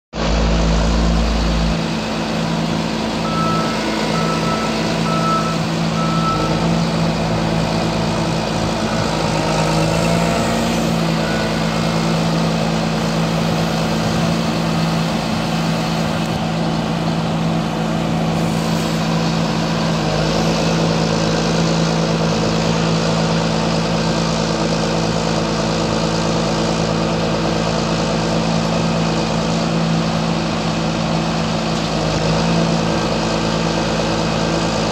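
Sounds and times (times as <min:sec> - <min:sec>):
diesel engine running: 0:00.1 - 0:34.9
short evenly spaced beeps: 0:03.2 - 0:06.6.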